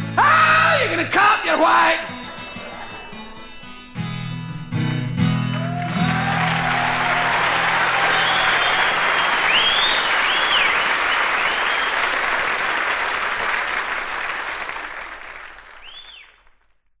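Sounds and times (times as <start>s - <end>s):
audience applauding: 1.2s - 3.8s, 5.3s - 16.8s
crowd whistling: 5.3s - 12.6s, 15.7s - 16.5s.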